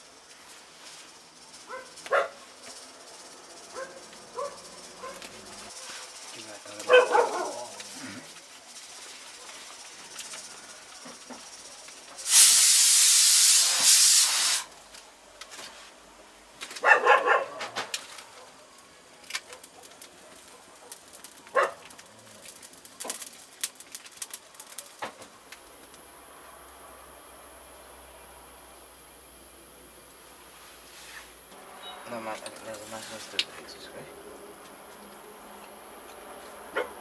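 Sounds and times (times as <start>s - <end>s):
loud steady hiss: 0.0s - 16.6s, 22.0s - 37.0s
wood fire crackling: 0.0s - 37.0s
dog barking: 1.7s - 2.4s, 3.7s - 6.2s, 6.9s - 7.8s, 16.8s - 18.8s, 19.4s - 21.9s, 36.7s - 37.0s.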